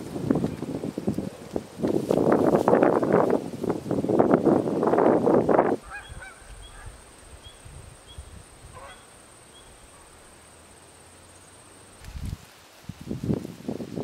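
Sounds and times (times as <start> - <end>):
low thump and rustle: 0.0 - 4.4, 12.0 - 13.9
geese honking: 5.8 - 7.0, 8.7 - 10.1.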